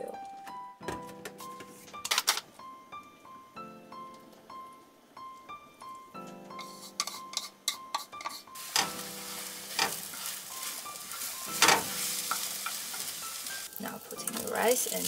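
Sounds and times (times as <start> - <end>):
utensils clicking and tapping: 6.6 - 9.0, 9.7 - 15.0
utensil scraping pan: 6.6 - 13.5
egg sizzling in frying pan: 6.6 - 15.0.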